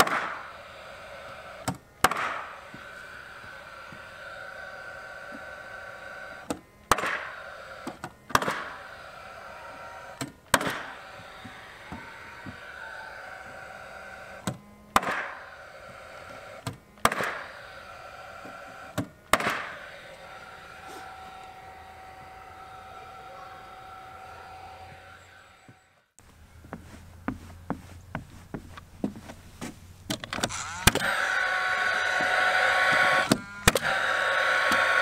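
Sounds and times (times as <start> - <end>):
nailer firing sharp bangs: 0.0 - 0.6, 1.4 - 2.8, 6.4 - 9.0, 10.1 - 11.5, 14.4 - 15.6, 16.6 - 17.6, 18.9 - 20.0, 32.2 - 35.0.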